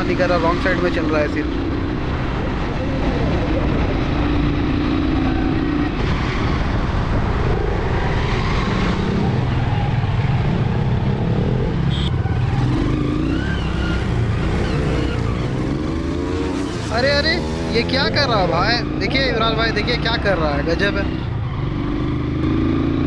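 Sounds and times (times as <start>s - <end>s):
wind rushing over microphone: 1.4s - 13.1s
motorcycle engine running: 11.2s - 17.5s.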